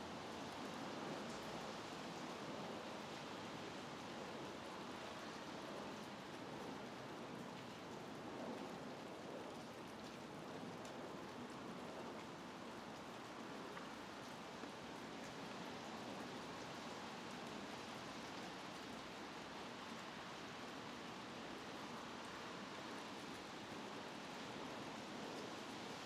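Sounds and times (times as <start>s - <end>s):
rain falling on foliage: 0.0s - 26.0s
faint drip ticks: 9.5s - 17.6s.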